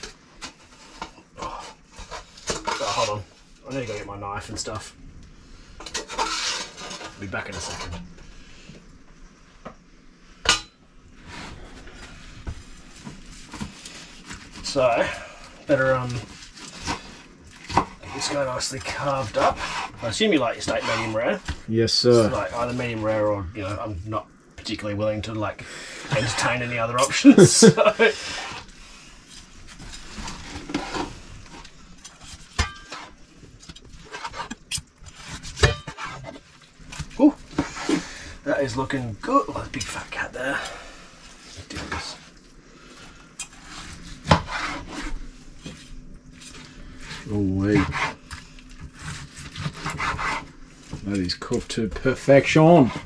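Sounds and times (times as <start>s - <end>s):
knife carving steak on board: 47.8s - 50.5s.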